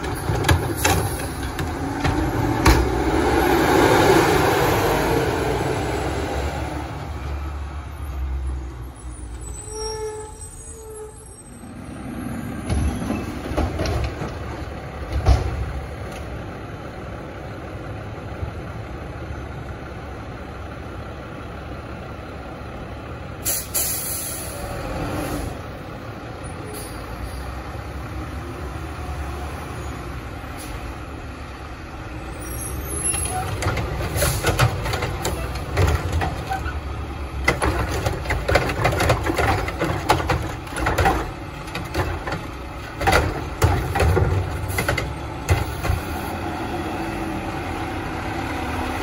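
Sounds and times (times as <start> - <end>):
diesel truck engines running: 0.0 - 9.8, 11.3 - 49.0
air brake hiss: 23.4 - 24.6.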